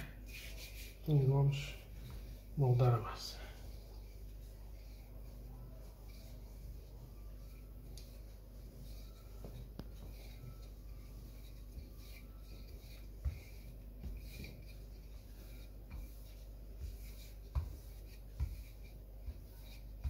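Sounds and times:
rolling pin rubbing on dough: 0.0 - 20.0.

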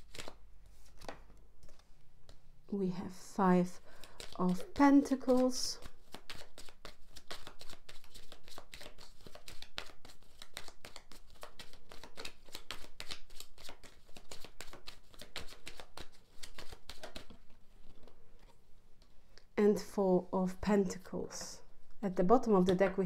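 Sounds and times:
cards being shuffled: 0.0 - 2.4, 3.9 - 18.5.

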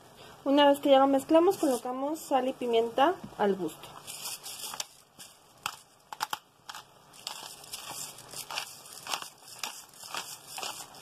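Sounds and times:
pepper mill grinding: 1.5 - 2.4, 4.0 - 11.0.

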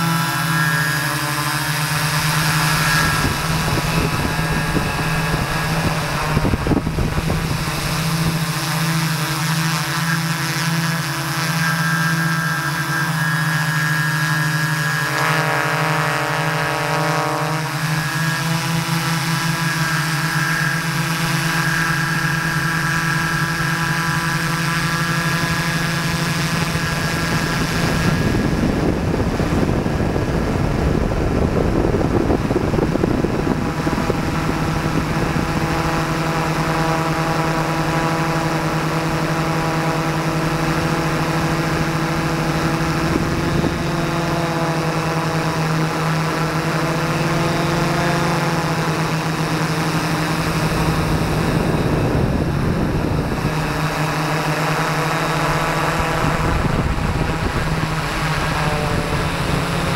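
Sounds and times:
drone propellers buzzing: 0.0 - 59.9.

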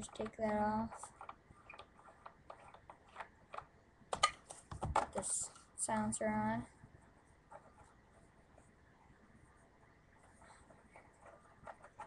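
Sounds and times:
faint plastic scrapes and ticks: 0.0 - 3.7, 10.2 - 12.0.

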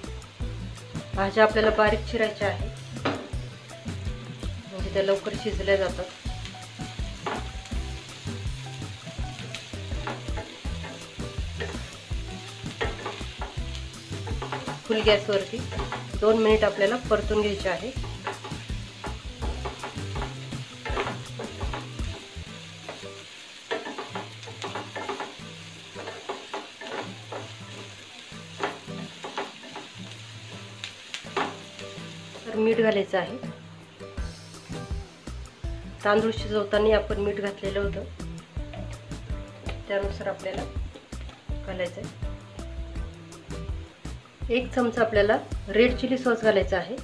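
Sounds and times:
vegetables sizzling in oil: 0.0 - 47.0
spatula scraping and knocking pan: 7.1 - 8.5, 9.2 - 30.0.

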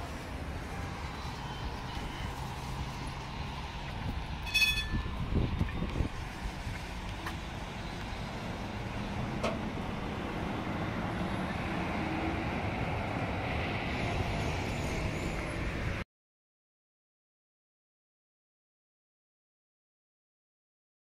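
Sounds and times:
tram wheels rumbling on rails: 0.0 - 16.0.

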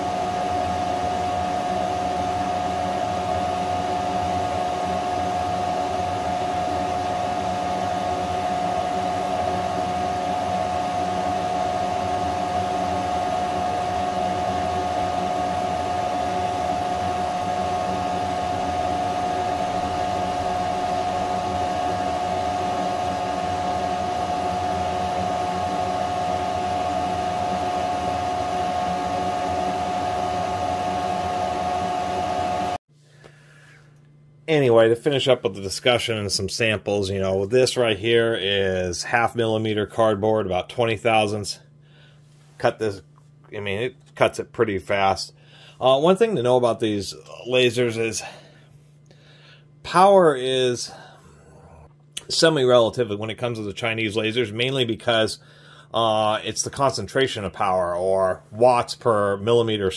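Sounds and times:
laser engraver fan whirring: 0.0 - 32.8.

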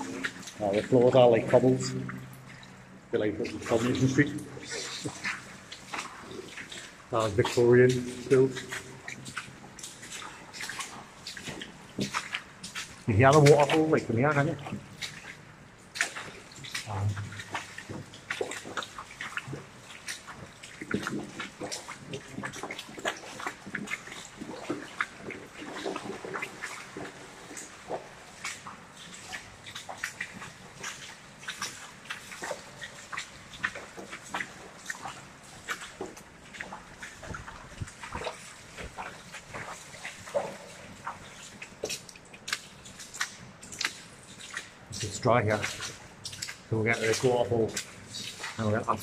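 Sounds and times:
footsteps splashing through water: 0.0 - 49.0
rush of underground waterfall: 0.0 - 49.0.

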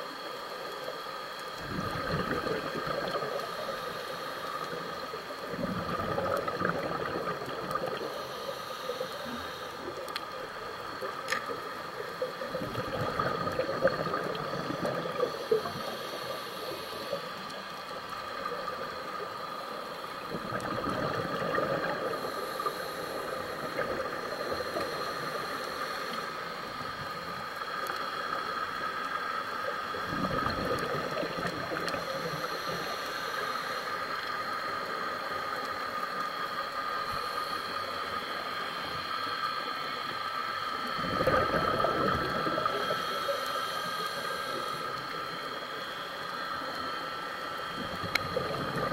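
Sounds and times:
steady high hum: 0.0 - 48.9
regulator inhale hiss: 0.2 - 48.9
exhaled bubbles gushing: 1.6 - 4.0, 4.6 - 8.2, 10.4 - 19.4, 20.1 - 25.5, 30.0 - 32.5, 40.8 - 43.2, 47.6 - 48.9.

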